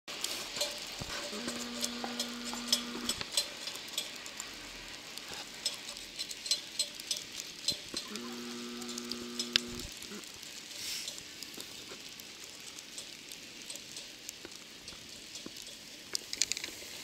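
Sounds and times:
rain pattering on microphone: 0:00.1 - 0:17.0
steady hiss: 0:00.1 - 0:17.0
steady humming tone: 0:01.3 - 0:03.2, 0:08.0 - 0:10.2.

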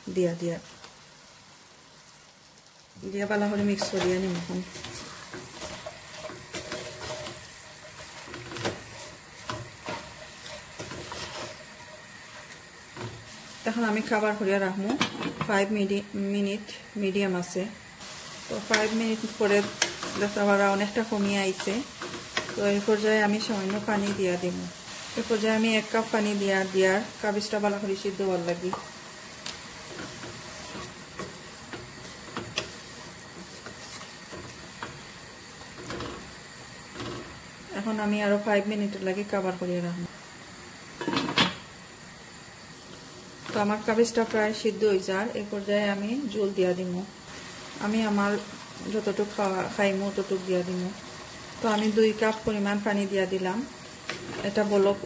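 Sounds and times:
light sizzle: 0:00.0 - 0:55.0
spatula scraping and knocking pot: 0:03.6 - 0:13.3.

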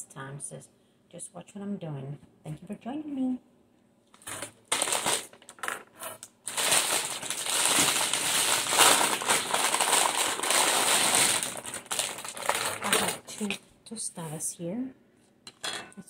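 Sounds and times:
loud crackling rustle: 0:06.5 - 0:13.3.

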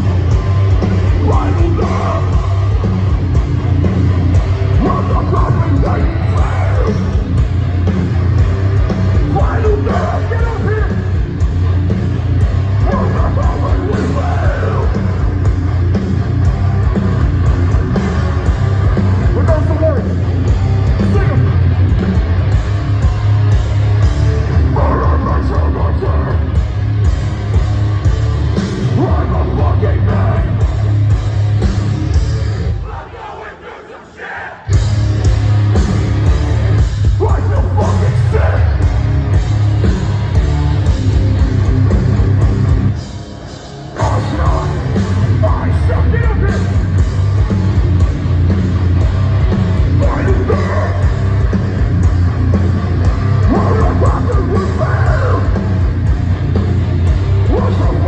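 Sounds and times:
distorted heavy guitars: 0:00.0 - 0:58.0
drums: 0:00.0 - 0:58.0
harsh screamed vocal: 0:01.2 - 0:02.8, 0:04.8 - 0:07.2, 0:12.8 - 0:15.0, 0:32.7 - 0:34.8, 0:50.0 - 0:51.3, 0:53.4 - 0:55.8.

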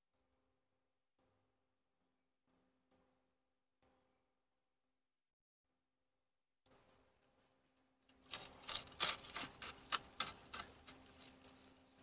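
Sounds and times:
shovel scraping coals in fire pit: 0:08.1 - 0:12.0.

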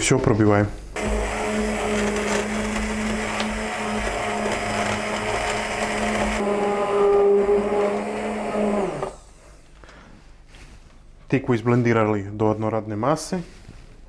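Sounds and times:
immersion blender motor hum: 0:01.0 - 0:09.4
soup churning: 0:01.0 - 0:09.4.

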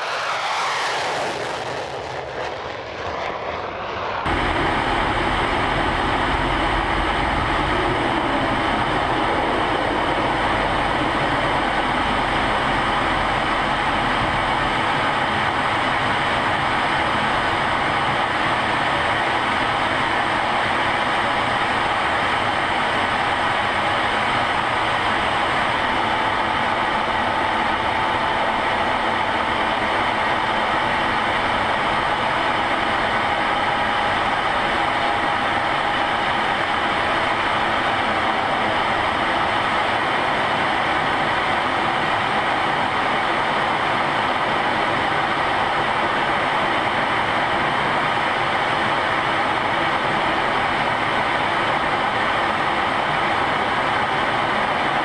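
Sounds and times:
jet engine and airflow rush: 0:00.0 - 0:55.0
faint wavering whine: 0:04.2 - 0:39.6.

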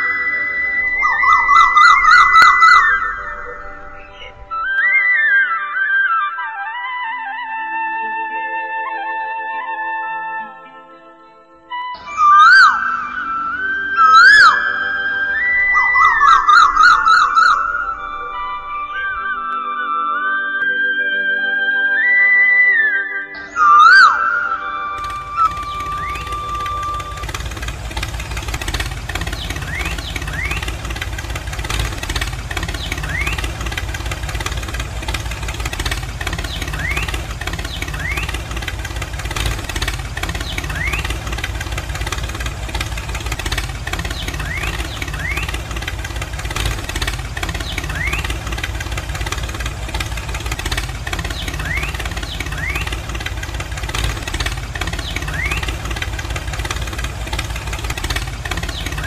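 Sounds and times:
tractor engine idling: 0:00.0 - 0:04.6, 0:12.0 - 0:19.6, 0:24.9 - 0:59.0
short rising chirps: 0:00.0 - 0:06.3, 0:12.0 - 0:21.0.

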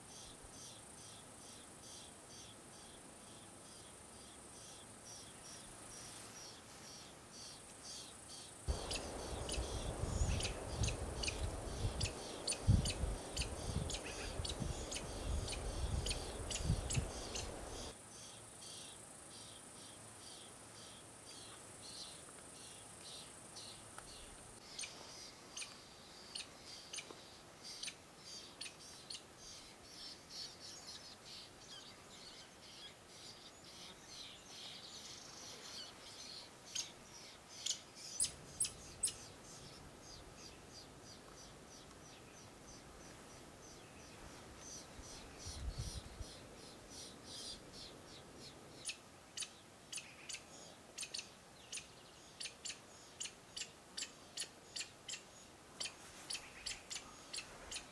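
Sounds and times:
nestling birds chirping: 0:04.6 - 0:18.9.

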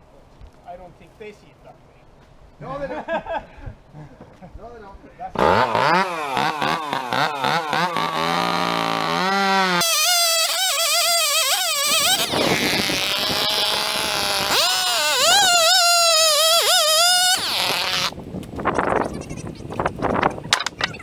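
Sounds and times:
chainsaw revving: 0:05.4 - 0:18.1
chainsaw cutting into board: 0:05.4 - 0:18.2.

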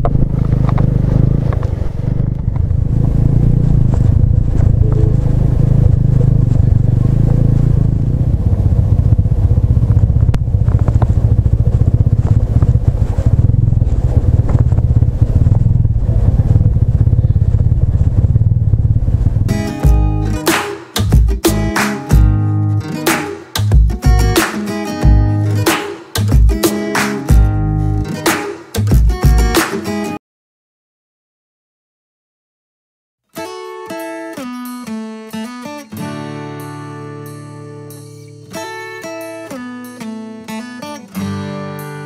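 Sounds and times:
motorcycle engine running: 0:00.0 - 0:22.6, 0:25.0 - 0:25.6
motorcycle riding through water: 0:00.2 - 0:19.6.

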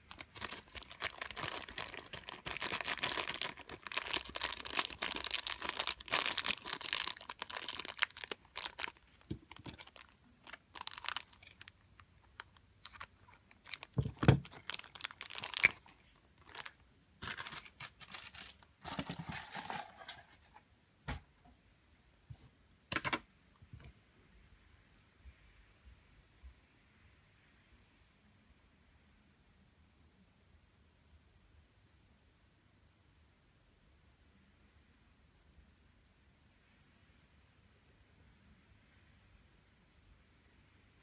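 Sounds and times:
plastic bag crinkling: 0:00.0 - 0:20.4.

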